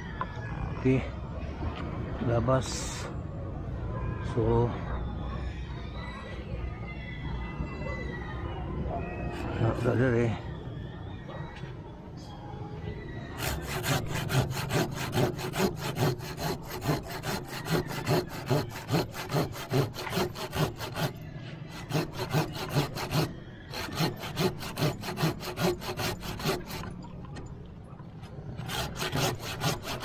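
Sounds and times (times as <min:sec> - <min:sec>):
handsaw cutting branch: 0:13.4 - 0:26.9, 0:28.6 - 0:30.0.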